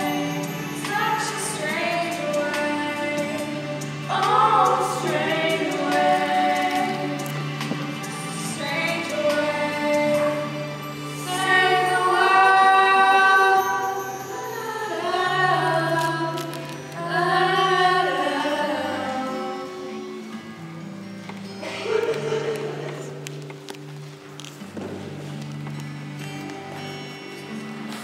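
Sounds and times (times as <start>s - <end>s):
girls singing together: 0.0s - 20.3s.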